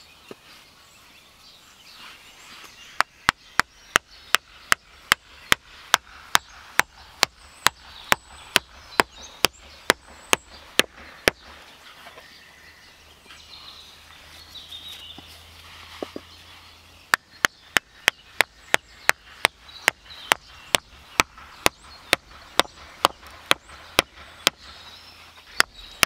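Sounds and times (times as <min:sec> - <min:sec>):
hammer blows on wooden stake: 0:03.0 - 0:11.6, 0:17.1 - 0:26.0.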